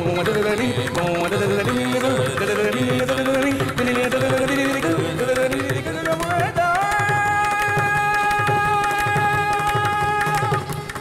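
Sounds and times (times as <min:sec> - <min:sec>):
mridangam drum strokes: 0:00.0 - 0:11.0.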